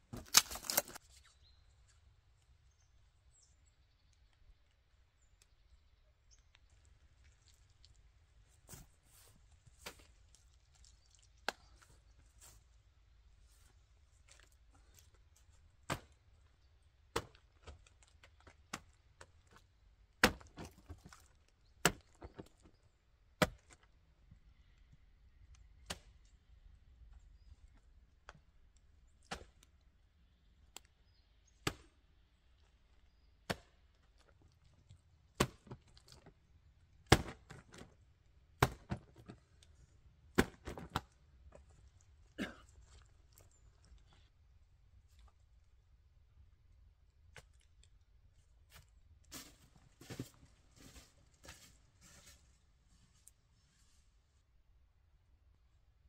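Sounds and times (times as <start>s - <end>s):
blade chopping wood: 38.6s - 39.0s, 40.4s - 41.0s.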